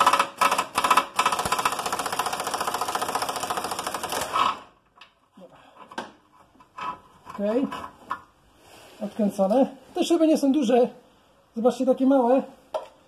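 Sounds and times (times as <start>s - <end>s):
impact wrench hammering: 0.0s - 4.6s.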